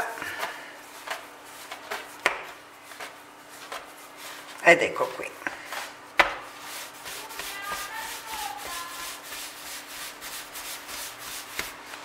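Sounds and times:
hands scuffing dough: 0:00.0 - 0:04.6, 0:05.5 - 0:12.0
dough slap: 0:00.4 - 0:03.9, 0:05.7 - 0:09.5, 0:10.8 - 0:12.0.

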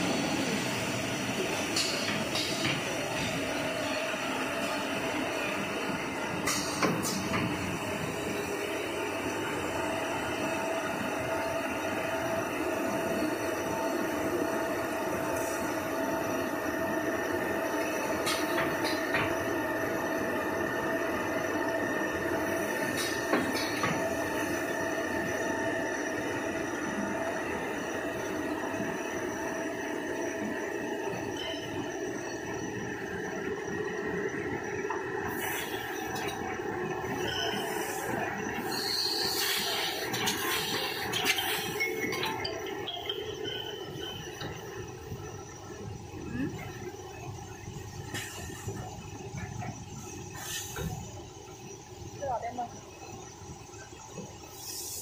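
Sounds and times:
constant machine whine: 0:00.0 - 0:55.0.

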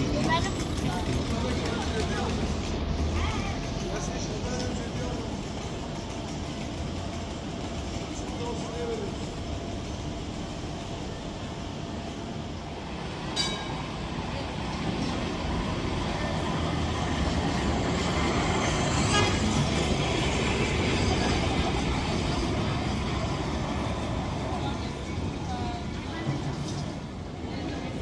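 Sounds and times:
tram rumbling on rails: 0:00.0 - 0:28.0.

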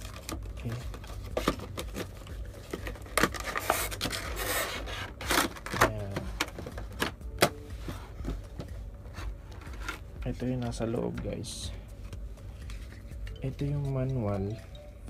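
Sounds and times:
paper and plastic scraping: 0:00.0 - 0:07.2.

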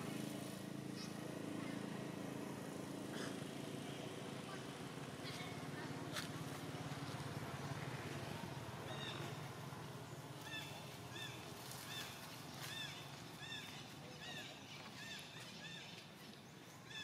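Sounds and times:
dry leaves rustling: 0:10.3 - 0:15.5.

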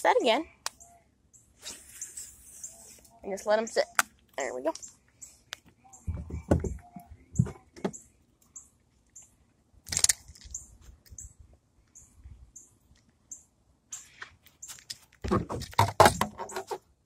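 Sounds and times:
faint high chirps: 0:00.7 - 0:09.4
scrape or rustle: 0:01.6 - 0:03.1
handling thumps: 0:06.1 - 0:08.0.

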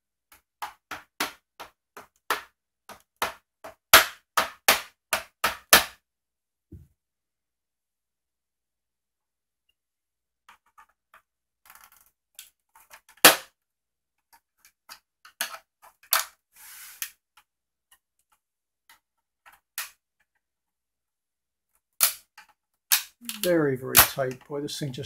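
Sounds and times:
short scrape: 0:16.5 - 0:17.2.

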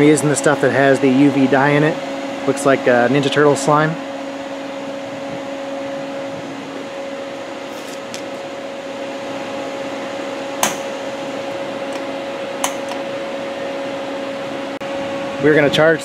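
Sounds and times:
machine humming: 0:00.0 - 0:16.0
valve clicks: 0:10.6 - 0:11.1, 0:11.9 - 0:13.1.

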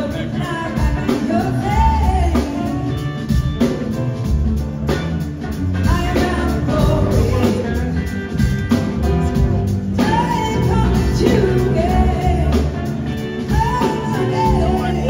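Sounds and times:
woman singing lead vocal: 0:00.0 - 0:03.3, 0:05.8 - 0:08.0, 0:09.3 - 0:15.0
drums: 0:00.0 - 0:15.0
electric guitars: 0:00.0 - 0:15.0.

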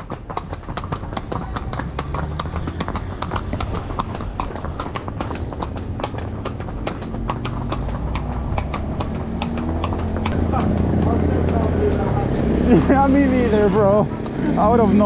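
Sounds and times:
hooves clip-clopping on stone: 0:00.0 - 0:15.0.

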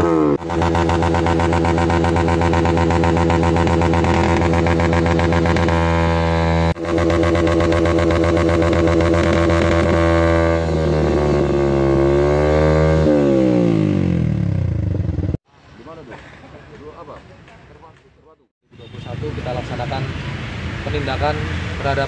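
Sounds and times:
loud motorcycle idling and revving: 0:00.0 - 0:15.4.

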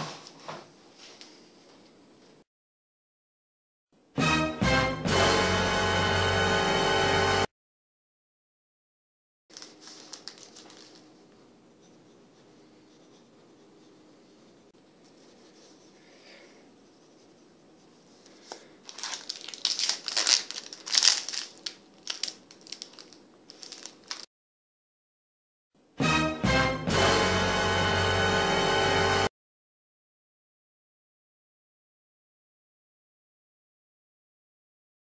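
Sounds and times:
foil wrapper crinkling: 0:09.5 - 0:11.2, 0:18.2 - 0:24.3.

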